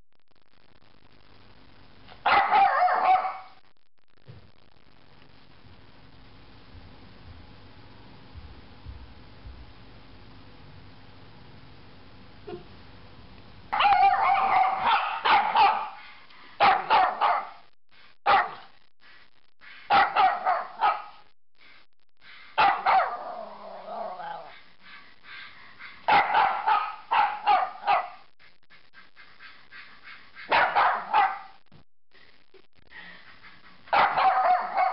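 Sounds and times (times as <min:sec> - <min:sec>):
small dog barking: 0:02.2 - 0:03.6, 0:13.7 - 0:17.6, 0:18.3 - 0:18.8, 0:19.9 - 0:21.2, 0:22.6 - 0:24.6, 0:25.8 - 0:28.3, 0:30.4 - 0:31.6, 0:33.9 - 0:34.9.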